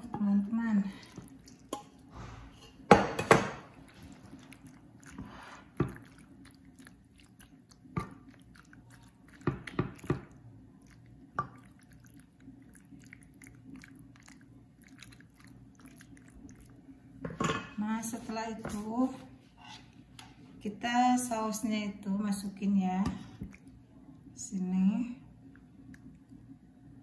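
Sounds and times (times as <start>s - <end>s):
wet food squishing: 0.0s - 17.2s, 23.1s - 24.4s, 25.2s - 26.6s
spoon scraping dish: 19.6s - 20.0s.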